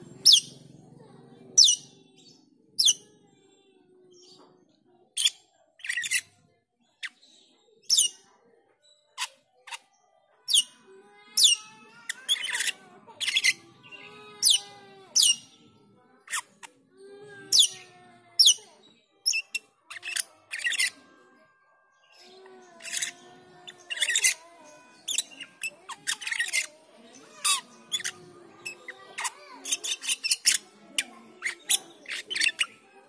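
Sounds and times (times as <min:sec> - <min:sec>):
bird warbling chatter: 0:00.0 - 0:00.8, 0:01.5 - 0:02.0, 0:02.8 - 0:03.0, 0:11.4 - 0:15.6, 0:19.3 - 0:21.0, 0:22.1 - 0:32.9.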